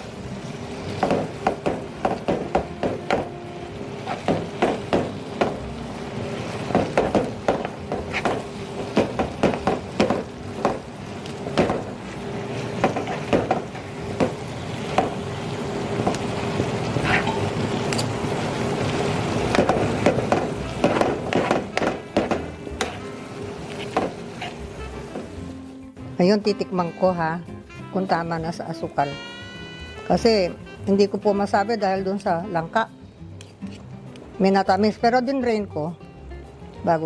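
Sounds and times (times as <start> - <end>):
metal utensils scraping frying pan: 17.0 - 17.6, 22.8 - 25.2.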